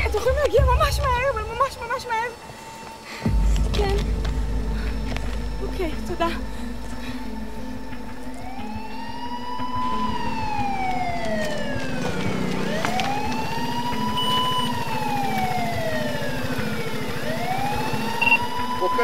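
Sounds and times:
police siren wailing: 0:05.4 - 0:19.0.

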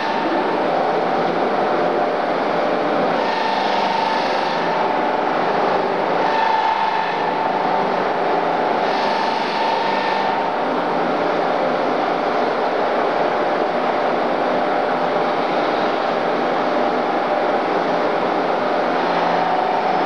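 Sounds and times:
polishing wheel whining on steel: 0:00.0 - 0:13.2, 0:15.2 - 0:20.0.

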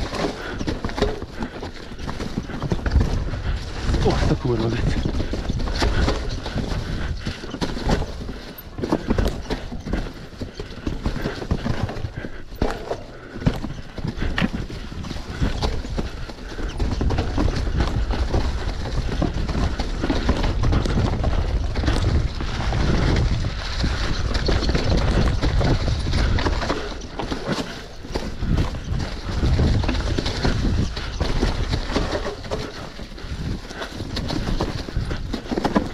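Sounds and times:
bike rattling and knocking: 0:00.0 - 0:35.9
bike tyres over ground: 0:00.0 - 0:35.9
wind rumble on microphone: 0:13.5 - 0:35.9.

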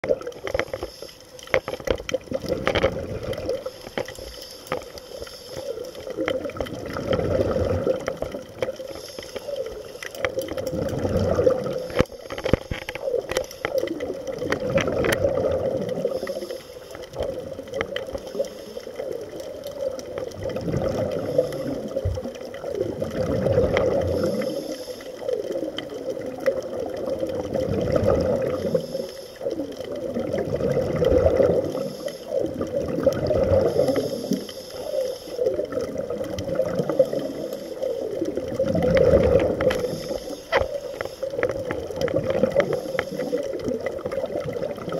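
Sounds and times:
air bubbling underwater: 0:02.1 - 0:03.7, 0:06.1 - 0:08.6, 0:10.4 - 0:12.0, 0:13.9 - 0:16.2, 0:20.1 - 0:24.5, 0:25.6 - 0:28.8, 0:30.0 - 0:34.3, 0:35.5 - 0:37.4, 0:38.1 - 0:40.0, 0:41.5 - 0:44.9.

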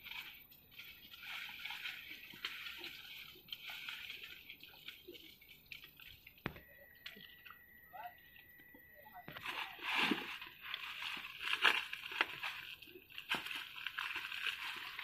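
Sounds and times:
faint steady high tone: 0:00.0 - 0:11.5
leaves and twigs rustling: 0:00.0 - 0:15.0.

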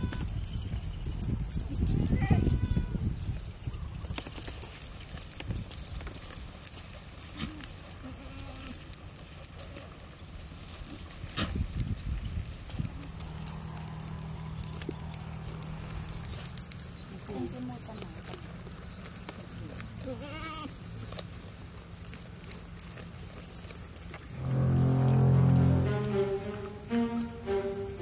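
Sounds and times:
low rumble: 0:24.3 - 0:26.8.

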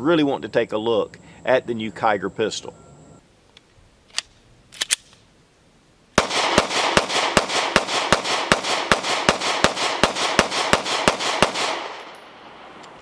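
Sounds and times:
pistol handling clicks: 0:03.5 - 0:05.2
rapid pistol shots: 0:06.2 - 0:12.2.

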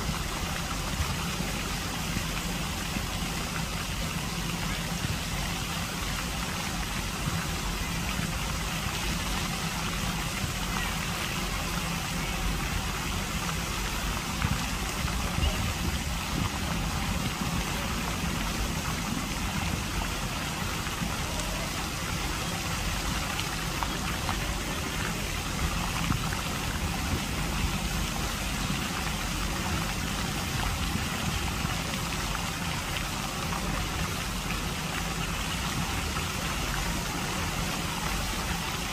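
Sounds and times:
fountain water splashing: 0:00.0 - 0:38.9
low steady rumble: 0:00.0 - 0:38.9.

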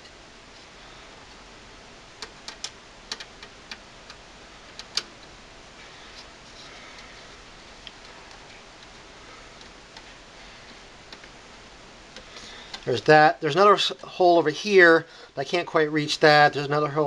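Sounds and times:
faint handling sounds: 0:04.1 - 0:13.1.

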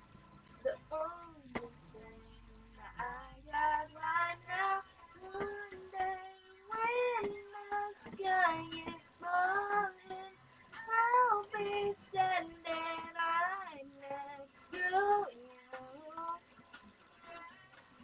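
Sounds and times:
high voice singing: 0:00.6 - 0:16.4.

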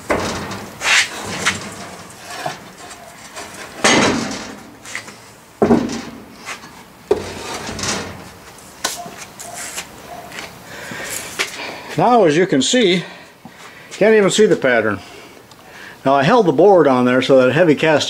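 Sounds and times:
wooden scrapes and knocks: 0:00.0 - 0:11.6.

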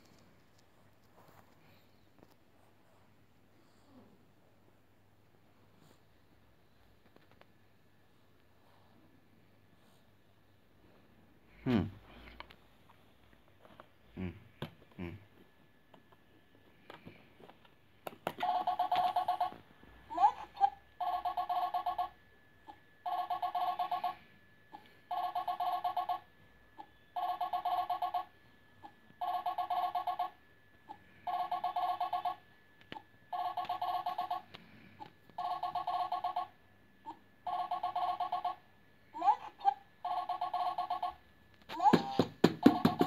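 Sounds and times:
electronic telephone ringing: 0:18.4 - 0:19.6, 0:21.0 - 0:22.2, 0:23.0 - 0:24.2, 0:25.1 - 0:26.3, 0:27.2 - 0:28.3, 0:29.2 - 0:30.4, 0:31.2 - 0:32.4, 0:33.3 - 0:34.5, 0:35.4 - 0:36.6, 0:37.4 - 0:38.6, 0:40.0 - 0:41.2.

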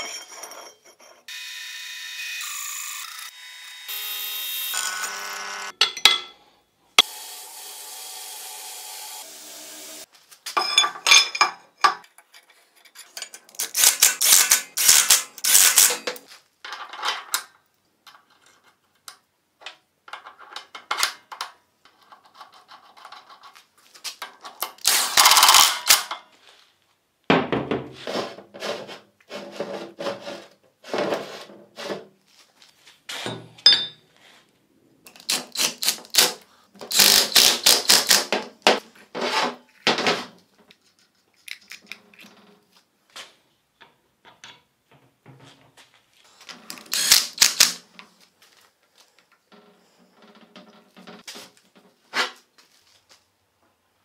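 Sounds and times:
tools scraping material: 0:38.8 - 0:42.5.

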